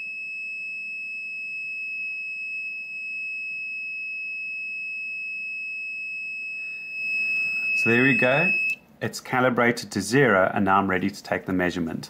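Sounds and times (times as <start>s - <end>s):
multimeter continuity buzzer: 0.0s - 8.8s.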